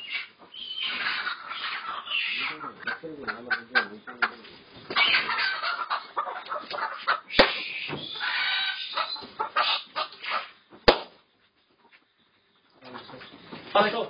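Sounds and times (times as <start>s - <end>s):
hens making agitated calls: 0.0s - 10.8s.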